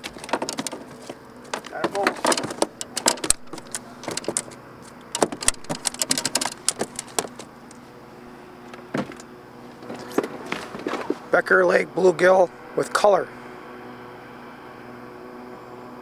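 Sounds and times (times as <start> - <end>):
fishing tackle clicks and knocks: 0.0 - 7.8.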